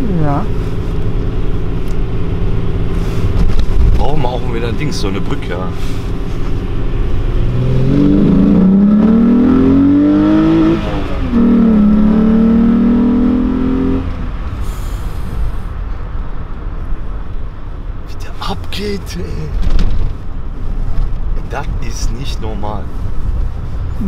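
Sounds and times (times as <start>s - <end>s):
car engine accelerating through gears: 0.0s - 14.8s.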